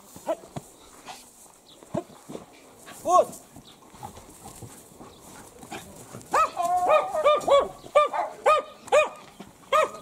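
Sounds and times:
dog barking: 6.3 - 10.0.

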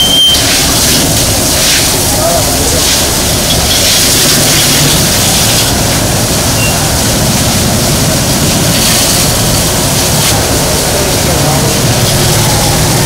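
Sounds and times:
pump engine running: 0.0 - 13.0
water jet spraying hard: 0.0 - 13.0.

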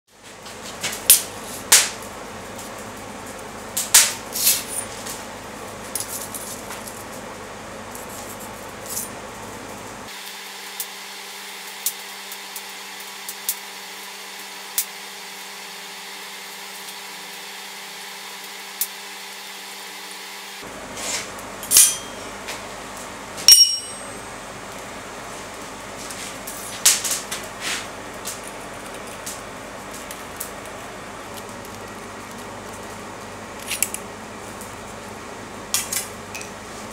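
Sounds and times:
background hum: 0.2 - 10.1, 20.6 - 36.9
metal bar clanking on an anvil: 21.6 - 22.4, 23.5 - 24.2
tools clinking on an anvil: 21.7 - 22.4, 23.5 - 24.2.

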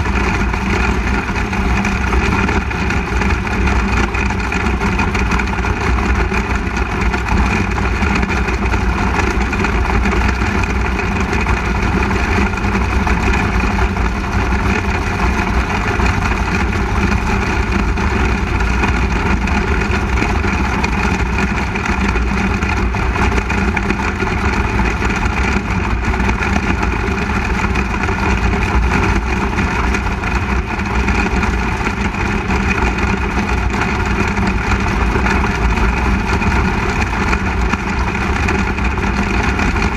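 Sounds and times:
race car engine running close-up: 0.0 - 39.9.

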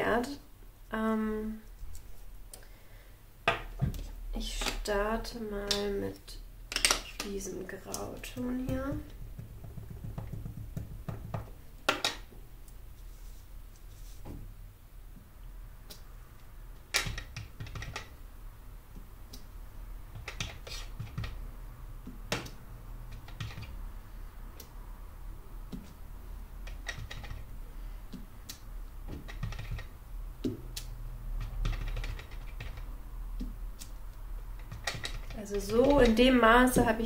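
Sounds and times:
rubber stamp tapping on paper: 8.7 - 12.1, 31.4 - 33.6.

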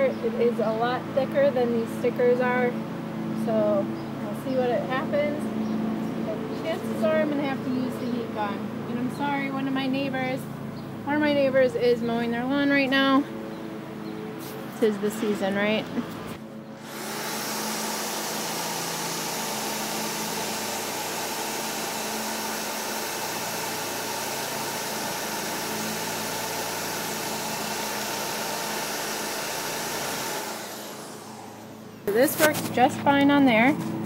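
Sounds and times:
drill eraser wheel grinding metal: 16.8 - 32.9.

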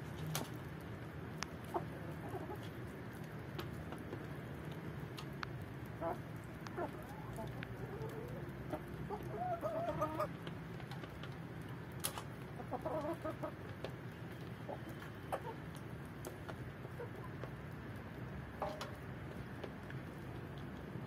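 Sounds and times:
chickens clucking: 1.4 - 3.0, 5.9 - 20.6.

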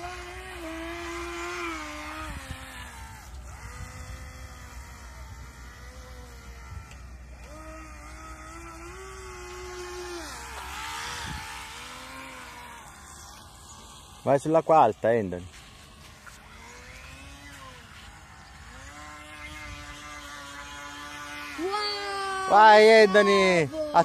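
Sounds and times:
model boat electric motor whining: 0.0 - 24.0.

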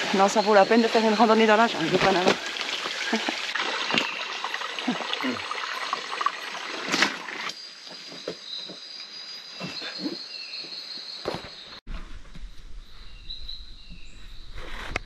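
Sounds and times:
stream water rushing: 0.0 - 7.5.

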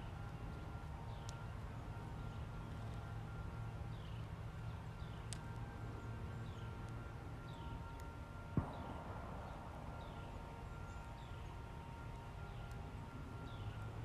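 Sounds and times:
low rumble: 8.6 - 10.8
bird chirping: 13.4 - 13.9.

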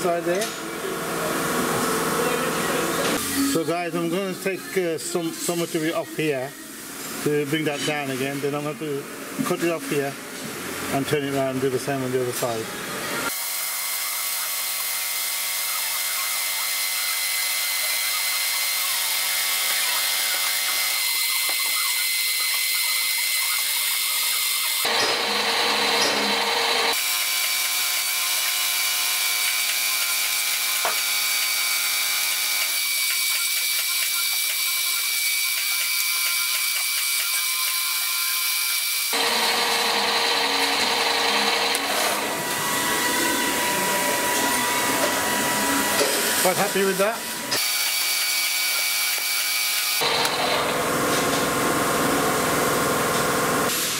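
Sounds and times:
lathe motor whining: 12.9 - 51.6.

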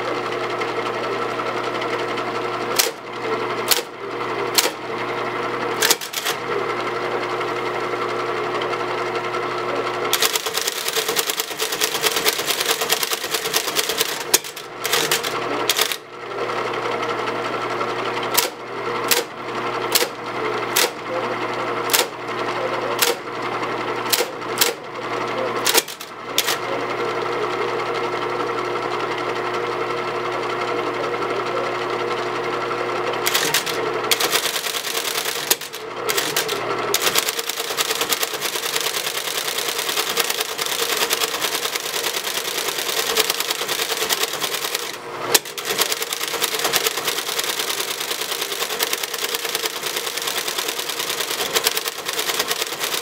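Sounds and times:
typewriter motor hum: 0.0 - 53.0
typewriter printing clatter: 1.6 - 4.9, 5.7 - 6.9, 9.9 - 16.1, 18.1 - 23.3, 24.0 - 27.4, 33.1 - 53.0
typewriter clunk: 2.8 - 3.0, 4.5 - 4.8, 5.8 - 6.4, 10.1 - 16.0, 18.3 - 19.3, 19.9 - 21.0, 21.9 - 22.2, 25.6 - 26.6, 33.3 - 53.0
typewriter keys struck: 2.8 - 3.0, 3.7 - 3.9, 4.5 - 4.8, 5.8 - 6.4, 10.1 - 16.0, 18.3 - 19.3, 19.9 - 21.0, 21.9 - 22.1, 24.1 - 24.8, 25.6 - 26.6, 33.3 - 53.0.

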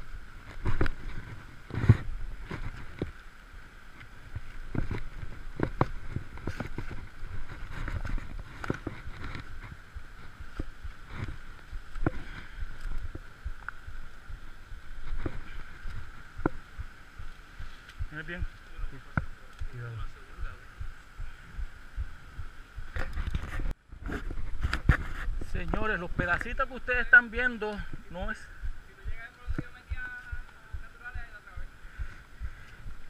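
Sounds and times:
steady high-pitched hum: 0.0 - 33.0.

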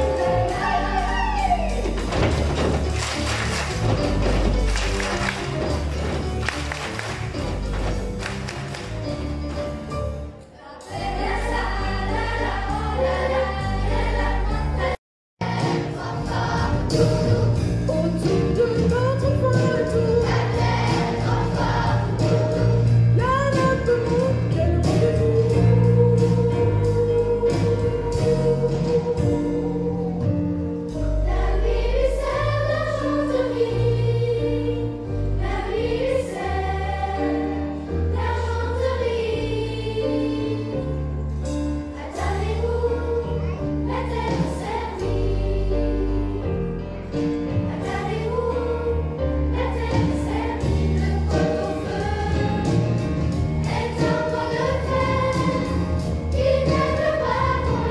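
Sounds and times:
children's choir singing: 0.0 - 8.5, 10.5 - 17.6, 18.2 - 22.9, 31.2 - 41.0, 41.6 - 46.7, 47.5 - 57.9
instrumental accompaniment: 0.0 - 57.9.

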